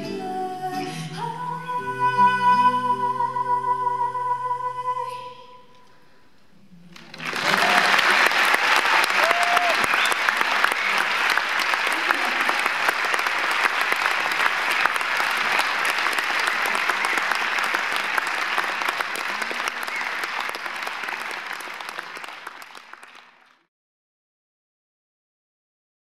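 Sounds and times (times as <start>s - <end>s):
audience applauding: 6.9s - 23.7s.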